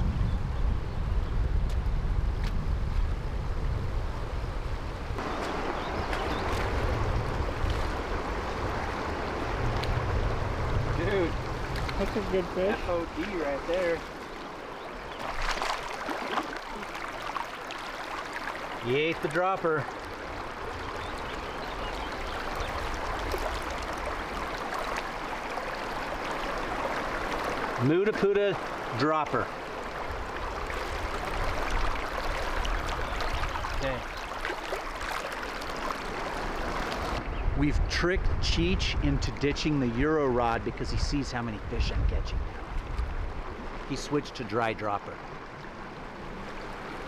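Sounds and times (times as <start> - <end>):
wind rumbling on microphone: 0.0 - 18.9, 19.9 - 27.8, 29.6 - 43.9
creek water rushing over rocks: 5.2 - 37.3, 39.2 - 47.0
fish splashing at surface: 15.2 - 18.7.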